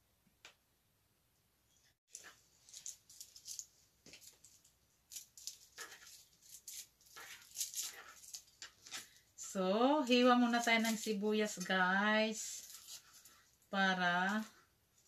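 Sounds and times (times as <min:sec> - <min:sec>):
onion skin rustling: 0:02.1 - 0:15.0
knife on plastic cutting board: 0:05.2 - 0:09.2.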